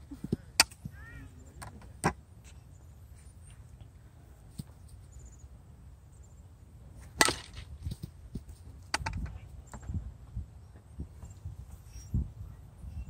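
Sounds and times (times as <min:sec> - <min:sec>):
bat striking softball: 0:00.4 - 0:00.9, 0:07.1 - 0:08.0
wind rumble on microphone: 0:07.5 - 0:13.0.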